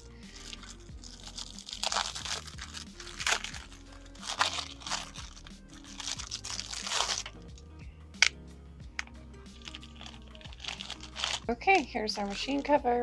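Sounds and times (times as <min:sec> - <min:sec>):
quiet background music: 0:00.0 - 0:13.0
plastic crinkling and rustling: 0:00.3 - 0:07.4, 0:09.6 - 0:12.8.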